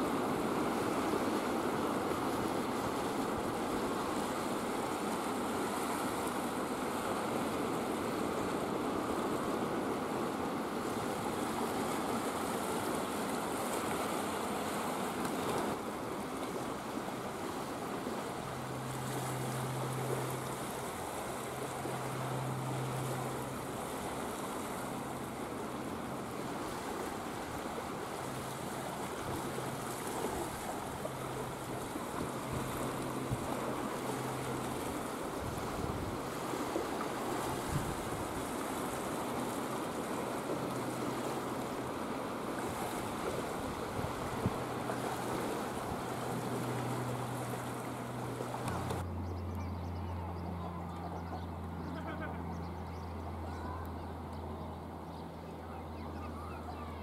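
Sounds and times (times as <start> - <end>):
waves rushing: 0.0 - 49.2
wind: 0.0 - 57.0.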